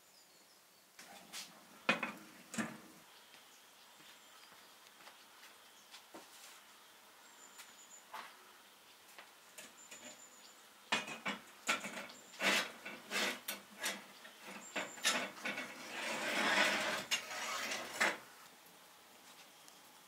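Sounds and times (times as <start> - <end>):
metal scrape: 11.0 - 18.2.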